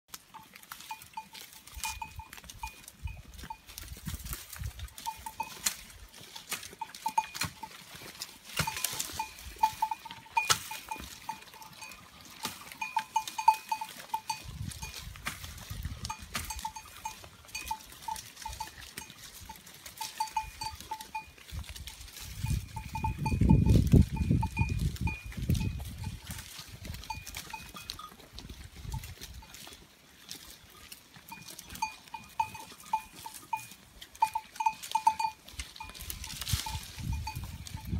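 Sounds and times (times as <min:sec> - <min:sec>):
sheep bells clinking: 0:00.1 - 0:37.9
twigs snapping and leaves rustling: 0:15.0 - 0:15.7, 0:35.5 - 0:37.0.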